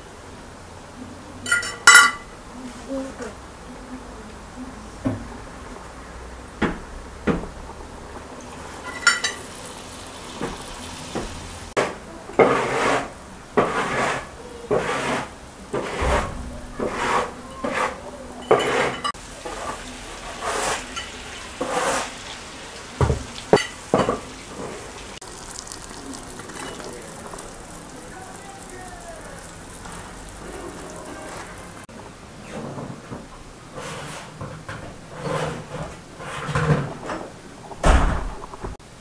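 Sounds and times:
food frying in bubbling oil: 0:05.6 - 0:11.8, 0:19.2 - 0:31.9
fork scraping a frying pan: 0:08.7 - 0:09.6, 0:11.8 - 0:22.3.

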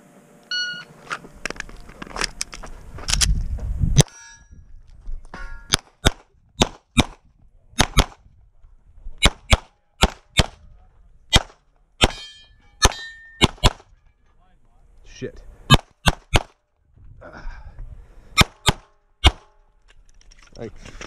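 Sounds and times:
steel targets clanging: 0:04.0 - 0:04.6, 0:05.3 - 0:05.8, 0:12.1 - 0:13.5
pistol shots: 0:05.7 - 0:07.2, 0:07.8 - 0:08.2, 0:09.2 - 0:10.6, 0:11.3 - 0:13.9, 0:15.7 - 0:16.6, 0:18.4 - 0:19.5.

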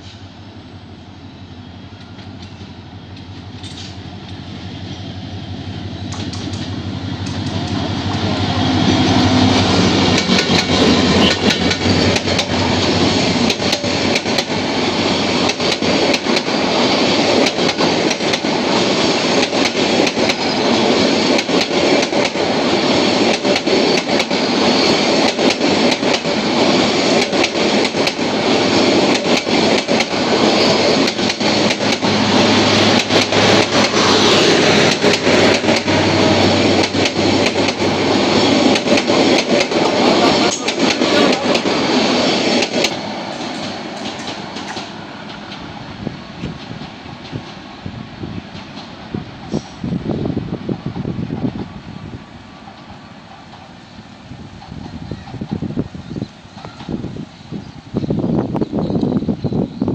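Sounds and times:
train passing: 0:00.0 - 0:59.9
wheels clacking over rail joints: 0:01.9 - 0:04.4, 0:06.0 - 0:45.8.

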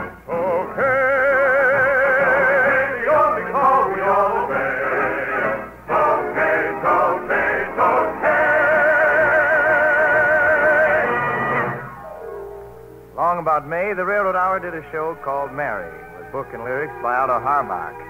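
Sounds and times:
man singing operetta: 0:00.0 - 0:05.5, 0:07.8 - 0:11.3
orchestra playing: 0:14.6 - 0:18.0.

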